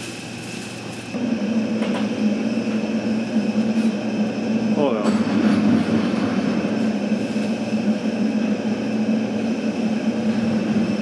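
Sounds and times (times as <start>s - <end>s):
exhaust fan humming: 0.0s - 11.0s.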